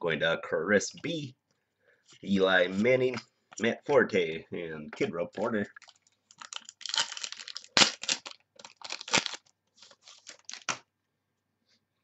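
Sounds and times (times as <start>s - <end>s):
wrapper crinkling and tearing: 5.8s - 10.8s.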